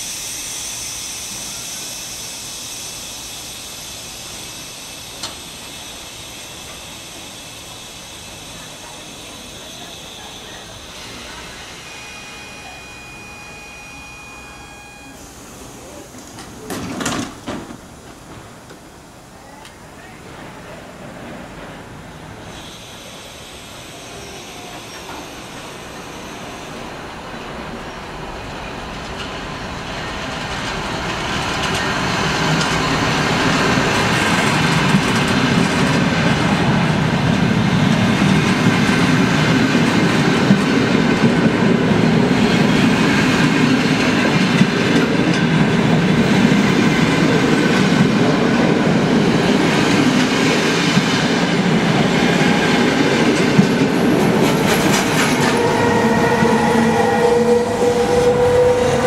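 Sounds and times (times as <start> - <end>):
train rumbling on rails: 0.0 - 59.0
locomotive tones: 4.5 - 59.0.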